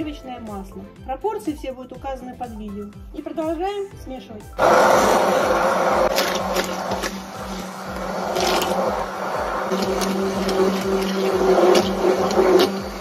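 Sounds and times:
immersion blender motor hum: 4.6s - 13.0s.

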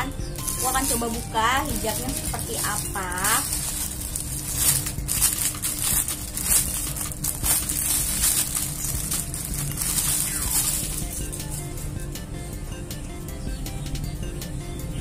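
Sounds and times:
plastic bag crinkling: 0.4s - 11.6s.

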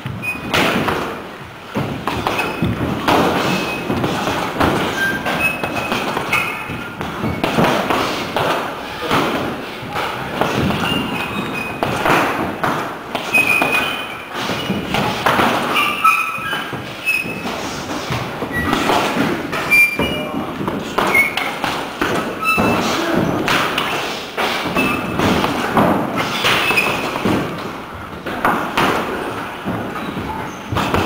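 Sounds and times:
short high squeaks: 0.2s - 0.6s, 4.8s - 7.4s, 13.3s - 14.8s, 15.6s - 17.8s, 19.6s - 20.4s, 24.8s - 25.1s, 26.2s - 27.2s
punches thudding on heavy bag: 0.4s - 15.9s, 16.8s - 31.0s.

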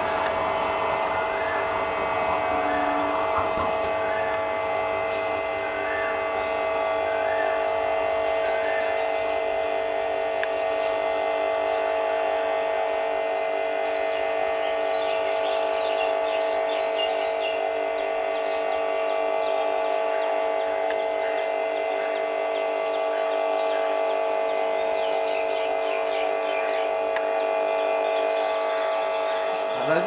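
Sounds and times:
steady drone of held tones: 0.0s - 30.0s
bird chirps: 13.8s - 30.0s.

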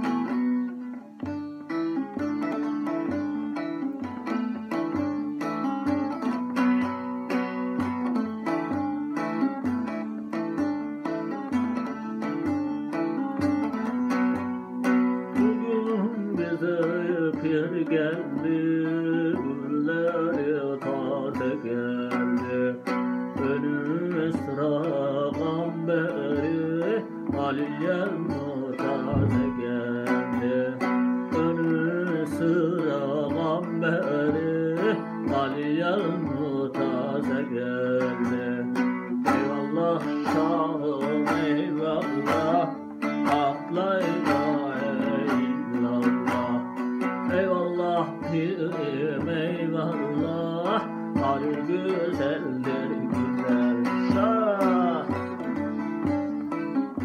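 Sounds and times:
man singing folk song: 0.0s - 57.0s
plucked lute: 0.0s - 57.0s.

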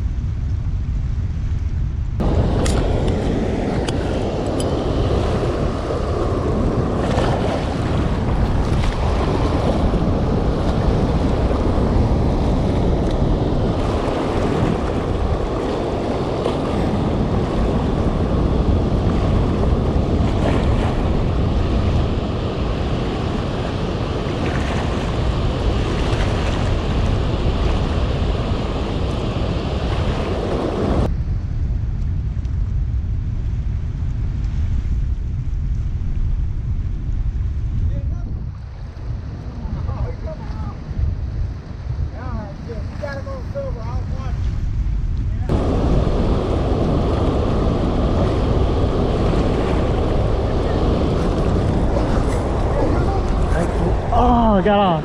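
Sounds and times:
wind buffeting microphone: 0.0s - 55.0s
whitewater rushing from spillway: 2.2s - 31.1s, 45.5s - 55.0s.

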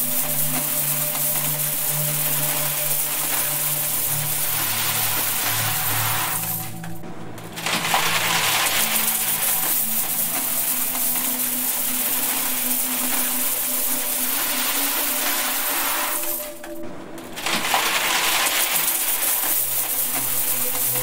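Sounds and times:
coins pouring into metal box: 0.0s - 6.9s, 7.6s - 16.8s, 17.4s - 21.0s.

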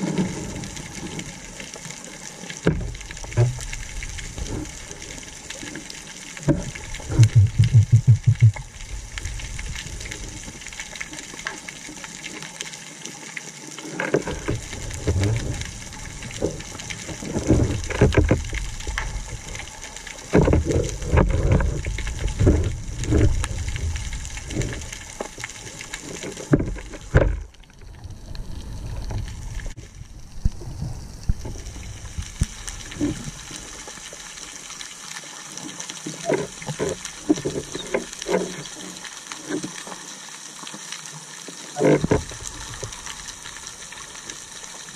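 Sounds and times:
muffled underwater rush: 0.0s - 11.7s, 14.2s - 34.6s
low thumps and clicks: 6.5s - 8.8s
rapid low pulses: 7.0s - 8.8s.

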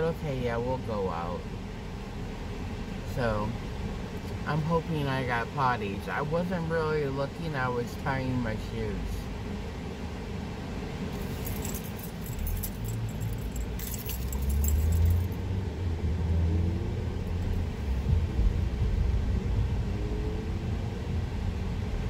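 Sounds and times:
car cabin rumble and road noise: 0.0s - 22.0s
light metallic jingling and clicking: 11.2s - 15.5s.

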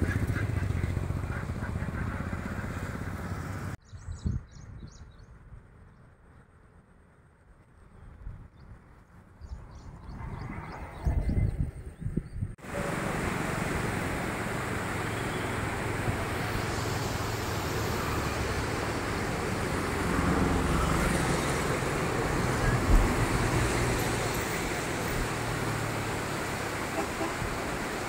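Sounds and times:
road traffic rumble: 0.0s - 3.8s, 5.2s - 28.0s
river rushing: 12.6s - 28.0s.

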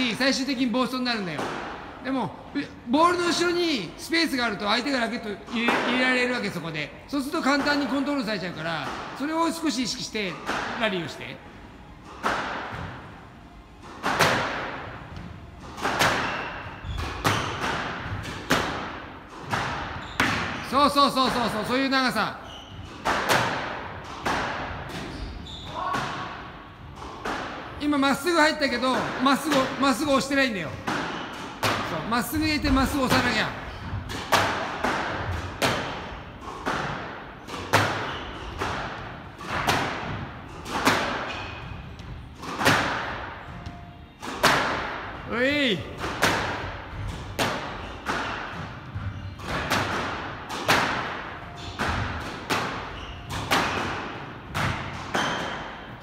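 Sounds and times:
squash ball smacks echoing: 12.1s - 13.1s, 13.9s - 22.3s, 23.0s - 25.1s, 29.0s - 56.0s.

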